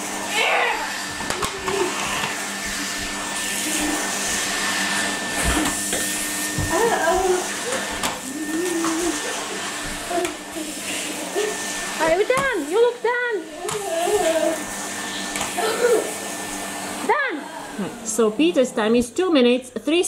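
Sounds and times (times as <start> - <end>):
vacuum cleaner motor whine: 0.0 - 20.0.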